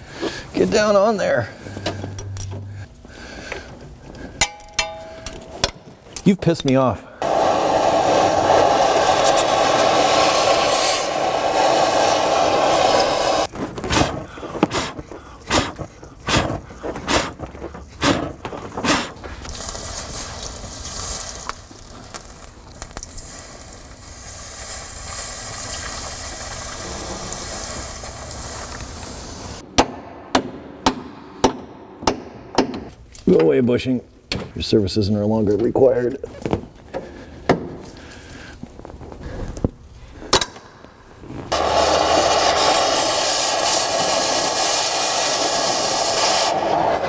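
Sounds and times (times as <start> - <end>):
water sizzling on hot metal: 7.2 - 13.5, 19.5 - 29.6, 41.5 - 47.0
cutting torch hissing: 7.2 - 16.5, 23.0 - 29.6, 41.5 - 47.0.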